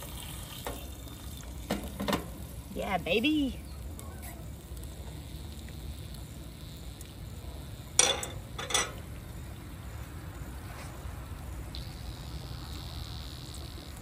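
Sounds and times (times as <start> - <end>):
utensil clattering against pan: 8.0 - 9.0.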